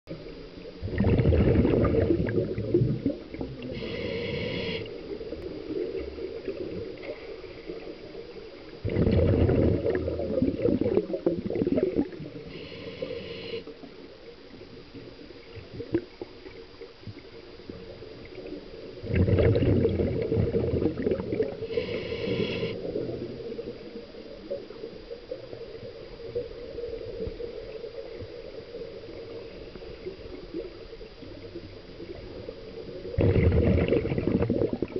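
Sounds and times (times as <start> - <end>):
underwater bubbles gurgling: 0.1 - 34.9
regulator whistling hiss: 3.8 - 4.9, 21.7 - 22.8.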